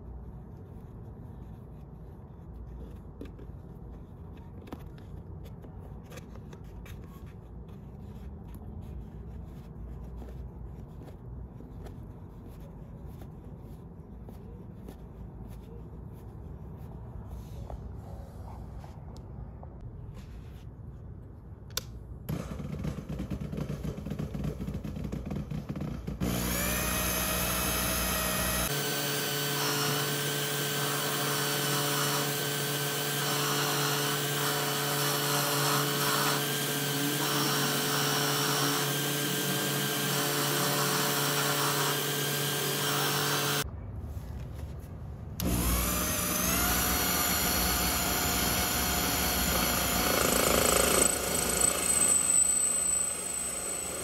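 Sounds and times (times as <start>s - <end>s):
micro lathe motor whining: 26.2s - 43.6s, 45.4s - 54.0s.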